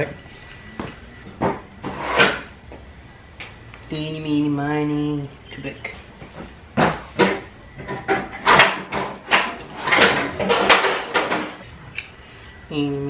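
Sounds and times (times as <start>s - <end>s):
tools clanking and rattling: 6.4s - 11.7s.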